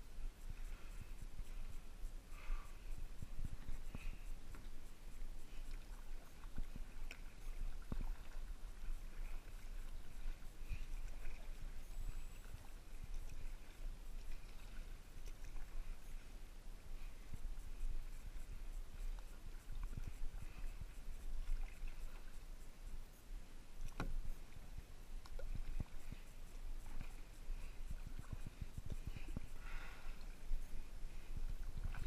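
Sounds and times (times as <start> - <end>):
steady low rumble: 0.0 - 32.0
paddle splashing in water: 5.6 - 15.9.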